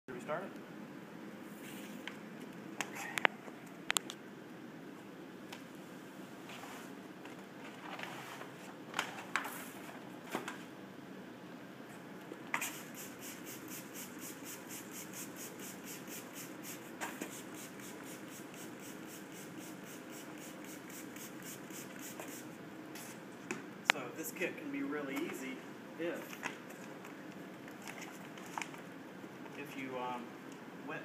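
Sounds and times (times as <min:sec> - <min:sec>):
spray bottle squirting: 0:12.6 - 0:22.5.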